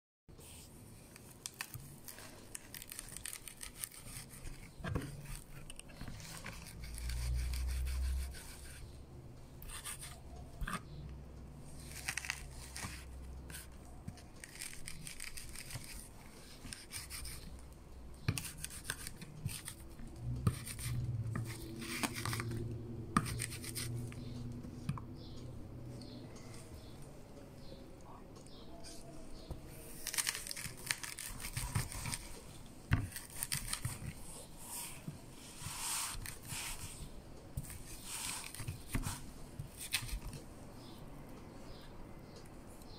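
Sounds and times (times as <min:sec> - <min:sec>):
blade scraping and crunching: 0:01.5 - 0:08.4.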